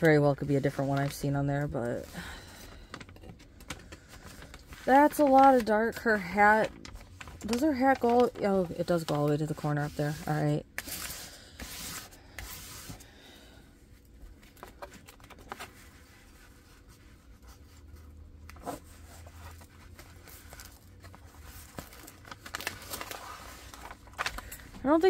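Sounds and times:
paper rustling: 0.0s - 13.0s, 14.3s - 25.0s
plastic tool scraping paper: 3.9s - 13.0s.

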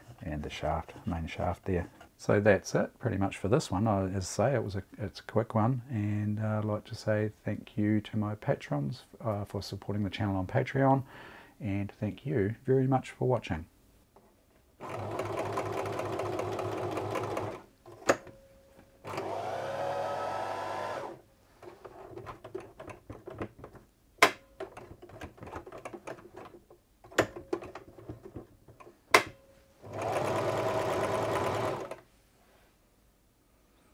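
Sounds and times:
sewing machine stitching: 14.8s - 17.7s, 19.0s - 22.9s, 29.8s - 32.0s
sharp clicks and knocks: 22.0s - 29.5s.

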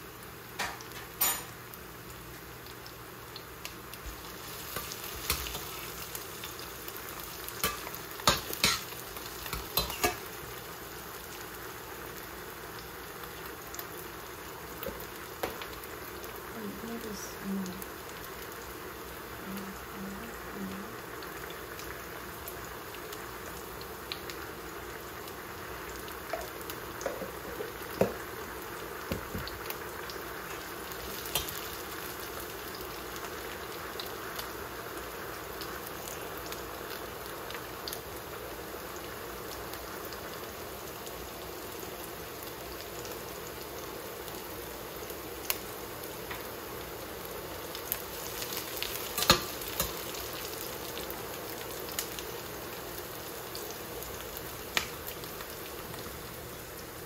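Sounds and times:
food sizzling in a pan: 0.0s - 57.0s
metal utensils clicking on pans: 0.6s - 1.6s, 7.6s - 10.3s, 31.1s - 31.8s, 49.1s - 50.0s.

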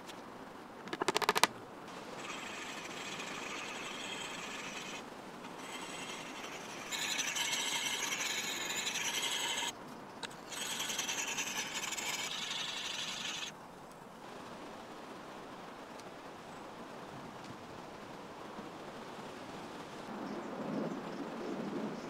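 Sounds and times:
axe scraping on sharpening stone: 2.1s - 9.7s, 10.4s - 13.5s.

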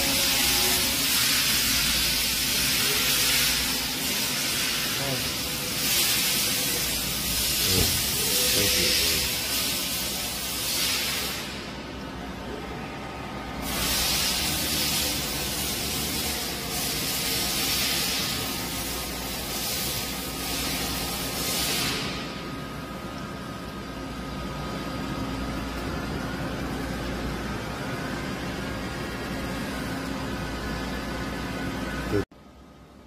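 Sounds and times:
boring mill humming: 0.0s - 10.5s, 11.5s - 33.0s
loud hissing bursts: 0.0s - 11.6s, 13.6s - 22.3s.

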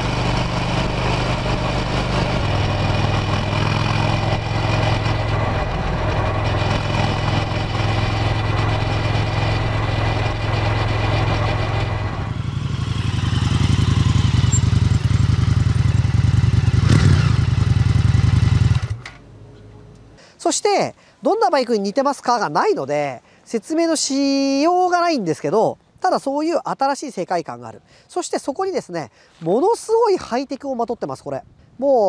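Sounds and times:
motorcycle engine running: 0.0s - 19.0s
road and wind noise: 0.0s - 20.3s, 29.1s - 32.0s.

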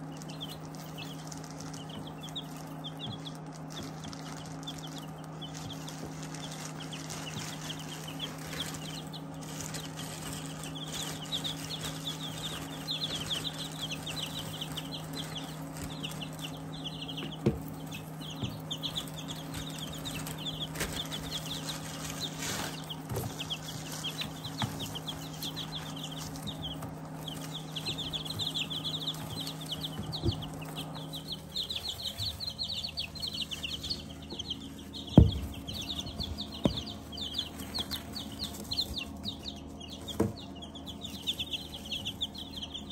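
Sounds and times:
chicks peeping: 0.0s - 42.9s
steady low hum: 0.0s - 42.9s
sharp knocks: 35.1s - 37.0s.

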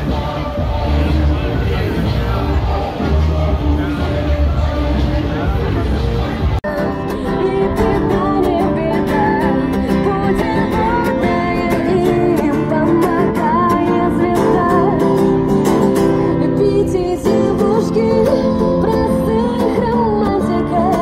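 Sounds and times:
man singing into a microphone: 0.0s - 21.0s
acoustic guitar strumming: 6.3s - 21.0s.

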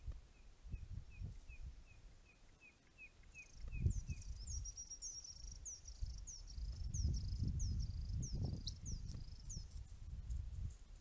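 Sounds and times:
high bird trill: 1.1s - 9.8s.

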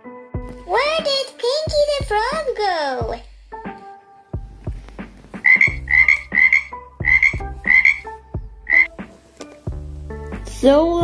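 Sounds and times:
frog croaking: 5.4s - 9.0s.

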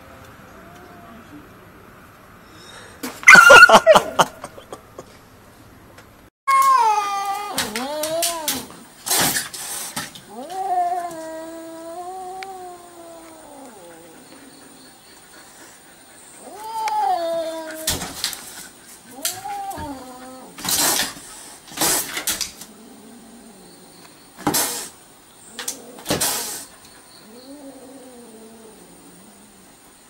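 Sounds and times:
cat yowling: 3.3s - 4.0s, 6.5s - 8.7s, 10.3s - 14.2s, 16.4s - 18.0s, 19.1s - 20.6s
cat hissing: 7.5s - 23.7s, 24.4s - 29.7s.

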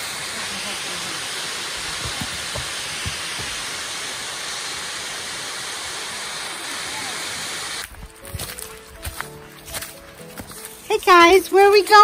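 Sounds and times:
waterfall rushing: 0.0s - 7.9s
soft low bumps: 1.8s - 3.7s.

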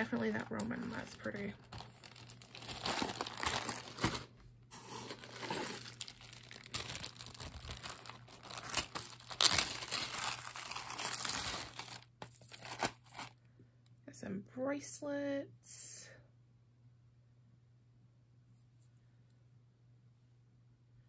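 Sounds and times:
plastic bags crinkling: 0.0s - 13.3s.

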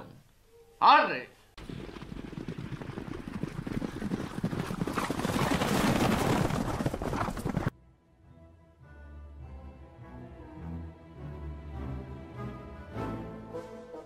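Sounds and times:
horses hoofbeats at a run: 1.6s - 7.7s.

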